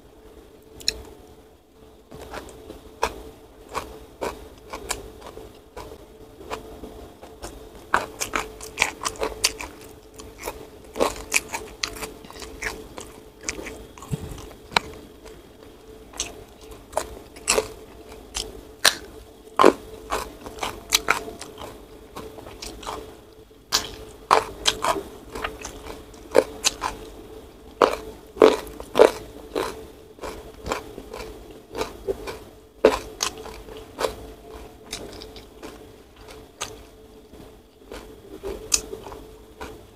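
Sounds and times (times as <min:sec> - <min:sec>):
close chewing and crunching: 0:00.7 - 0:01.2, 0:02.1 - 0:39.9.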